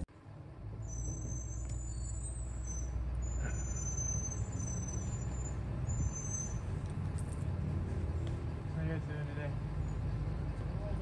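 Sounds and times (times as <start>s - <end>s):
vehicle engines idling: 0.0s - 11.0s.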